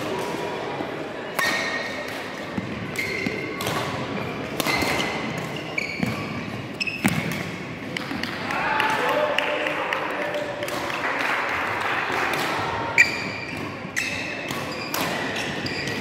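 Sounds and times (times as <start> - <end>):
racket striking shuttlecock: 1.3 - 8.4, 12.3 - 16.0
shoes squeaking on court floor: 2.5 - 7.7, 13.0 - 16.0.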